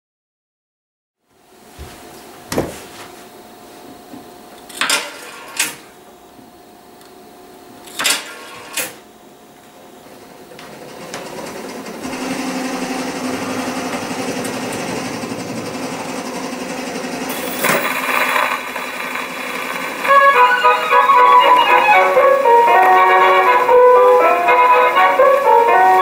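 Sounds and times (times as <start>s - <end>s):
scratchy record surface noise: 17.3s - 26.0s
record crackle: 17.4s - 24.2s.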